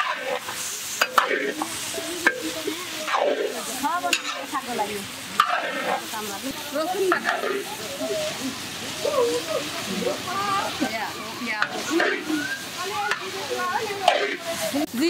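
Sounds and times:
metal ladle scraping pan: 0.0s - 7.9s, 10.8s - 14.8s
meat and potatoes sizzling in wok: 0.0s - 15.0s.

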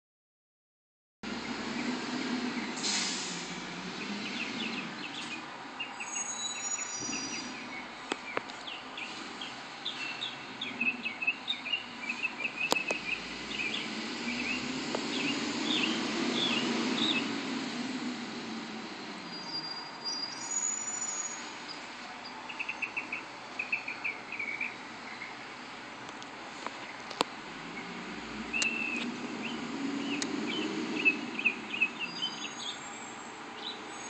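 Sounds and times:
small birds chirping: 3.9s - 25.8s, 26.7s - 34.0s
sharp clicks: 12.7s - 13.0s, 28.6s - 29.1s.

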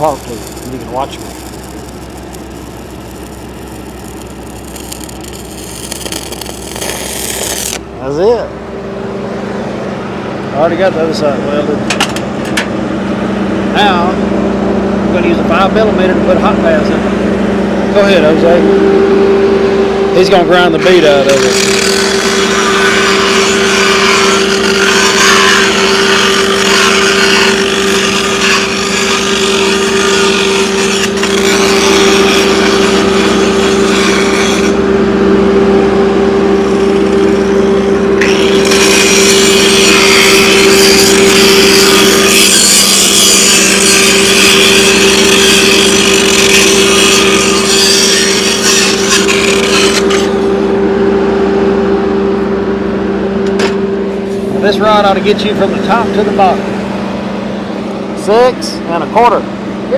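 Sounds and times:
angle grinder grinding steel: 0.0s - 7.8s, 20.2s - 35.8s, 36.6s - 51.3s, 53.3s - 59.4s.

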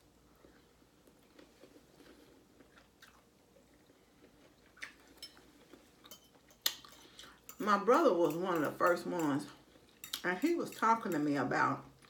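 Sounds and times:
quiet chewing: 0.3s - 7.6s.

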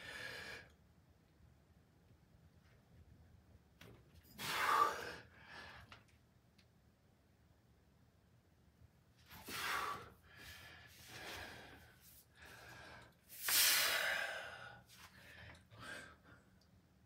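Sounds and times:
man breathing forcefully: 4.4s - 5.9s, 9.4s - 16.4s.

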